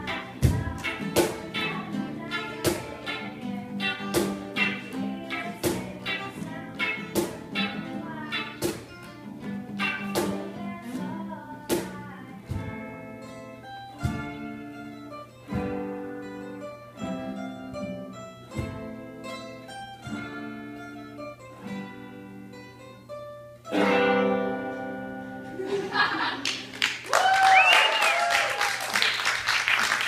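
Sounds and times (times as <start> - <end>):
guitar chords: 0.0 - 27.0
applause: 26.4 - 30.0
whooping cheer: 27.0 - 29.3.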